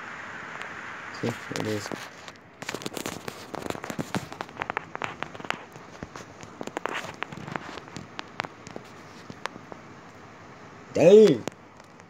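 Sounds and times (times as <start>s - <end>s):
heavy rain hissing: 0.0s - 5.1s
raindrops tapping hard surface: 1.5s - 9.9s.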